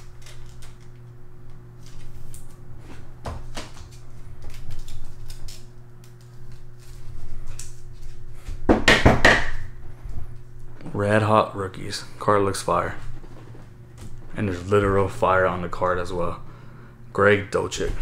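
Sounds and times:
plastic sleeve rustling: 0.0 - 8.4
steady low hum: 0.0 - 18.0.

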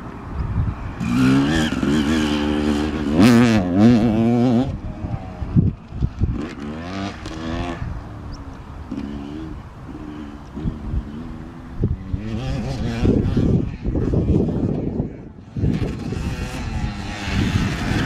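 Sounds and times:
motocross bike engine revving: 1.0 - 8.3, 15.6 - 18.0.

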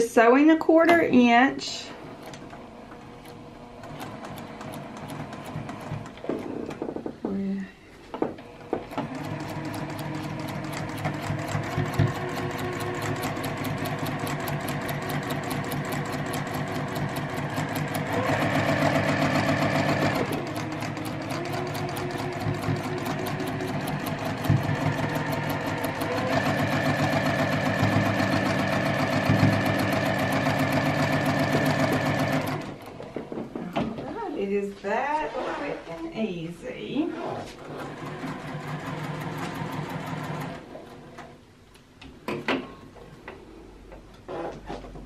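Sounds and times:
sewing machine stitching: 2.2 - 6.9, 8.7 - 33.1, 37.2 - 41.1.

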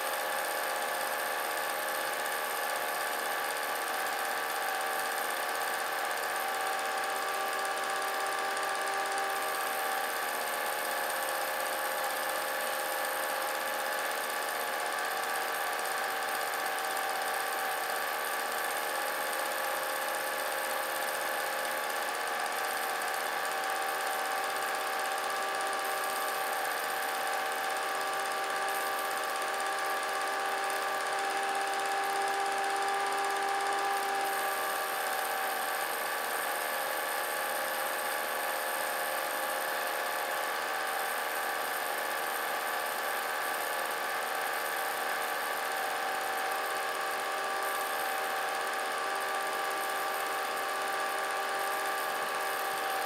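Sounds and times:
film projector motor whirring: 0.0 - 53.0.

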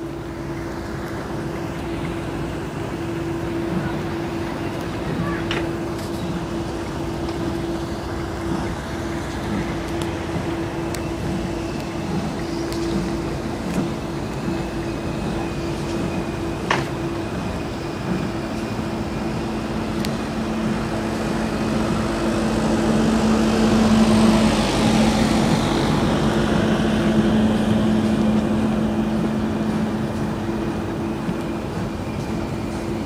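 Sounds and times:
rushing wheel and wind noise: 0.0 - 33.0
train hum: 0.0 - 33.0.

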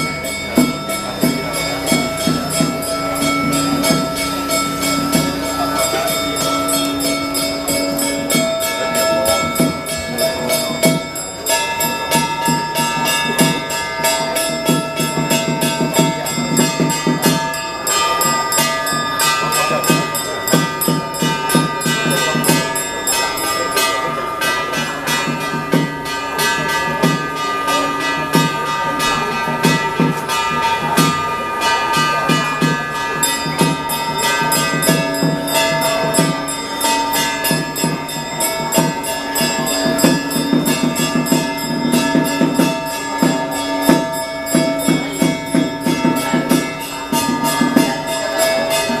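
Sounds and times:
cymbals and gongs clashing: 0.0 - 49.0
sustained ringing tones: 0.0 - 49.0.

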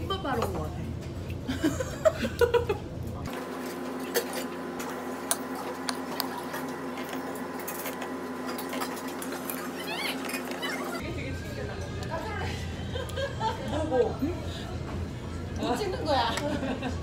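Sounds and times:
steady mechanical hum: 0.0 - 17.0
woman laughing: 1.5 - 2.8, 12.5 - 14.0, 15.7 - 17.0.

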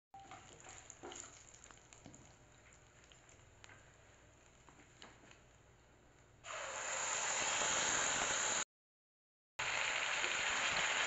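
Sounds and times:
small crackles and pops: 0.2 - 6.3
spices sizzling in hot oil: 9.6 - 11.0.

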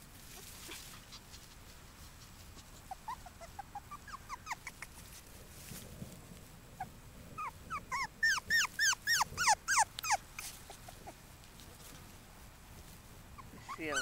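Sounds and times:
puppy whimpering: 2.3 - 5.0, 6.8 - 11.2, 13.4 - 14.0.

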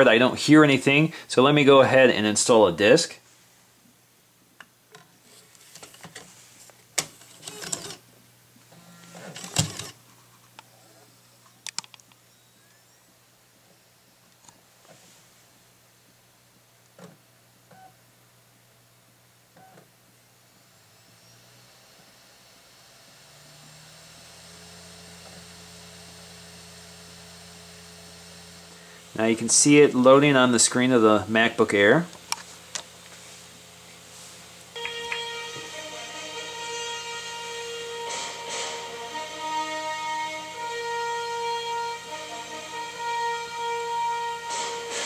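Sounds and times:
disc scraping into slot: 7.0 - 8.0, 8.9 - 10.0
optical drive whirring: 7.0 - 8.0, 8.7 - 10.0, 20.9 - 28.8
quick clicks: 11.6 - 12.2
higher drive tone: 20.8 - 45.0.

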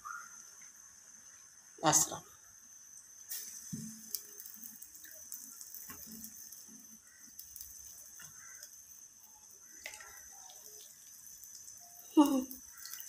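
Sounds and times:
syrup bubbling in pot: 0.1 - 13.0
gas burner hiss: 2.9 - 12.1.

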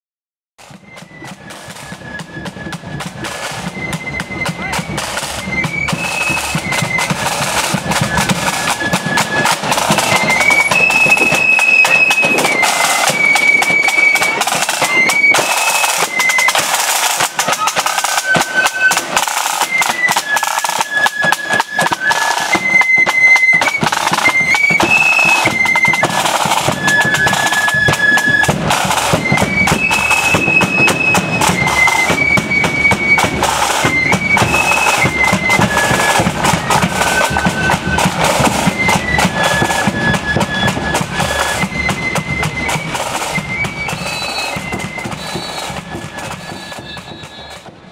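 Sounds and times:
flutes playing melody: 0.6 - 47.9
side drums: 0.6 - 47.9.

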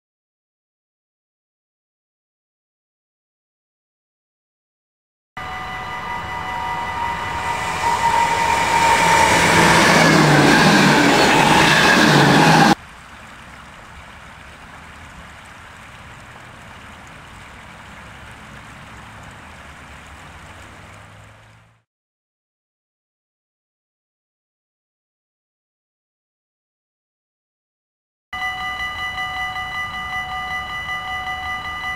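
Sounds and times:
steady high tones: 5.4 - 12.8, 28.4 - 31.9
train approaching: 5.4 - 12.8, 28.4 - 31.9
water running over a weir: 12.7 - 21.8.

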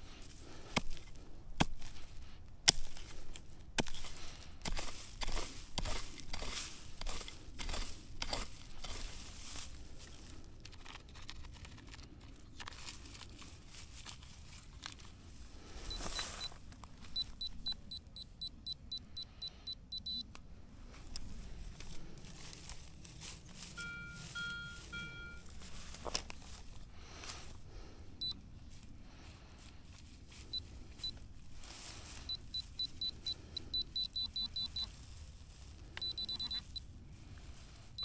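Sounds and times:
scuffs and clicks: 0.2 - 17.6
metal detector beeping: 15.8 - 20.4, 23.7 - 25.9, 28.2 - 28.4, 30.4 - 31.2, 32.0 - 35.0, 36.0 - 36.9.

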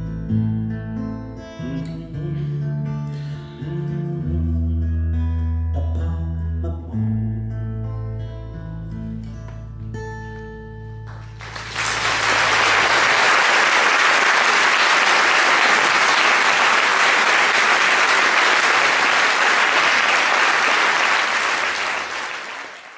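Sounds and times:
audience applause: 11.1 - 22.9.

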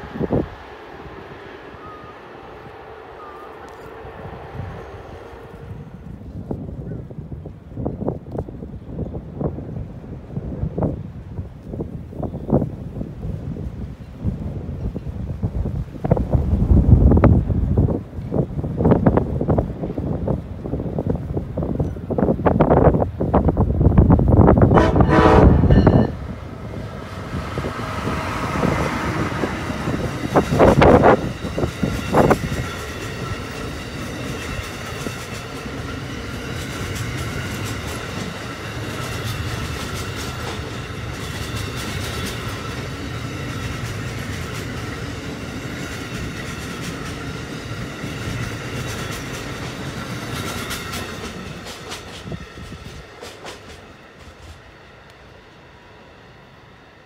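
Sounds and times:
train horn blasts: 0.0 - 6.4, 24.6 - 32.4
train wheels clattering over rails: 24.7 - 54.8.

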